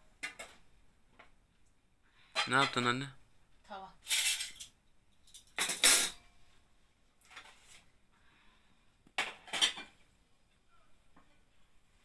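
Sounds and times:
cutlery and dishes clattering: 2.3 - 2.9, 4.0 - 6.3, 9.2 - 10.0.

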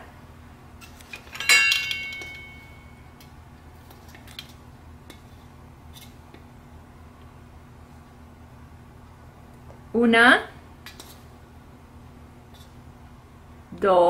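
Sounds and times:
utensil clinking on metal container: 1.2 - 2.8.

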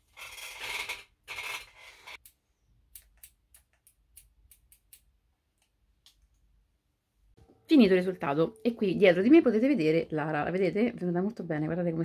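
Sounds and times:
scissors snipping hair: 2.2 - 6.2.

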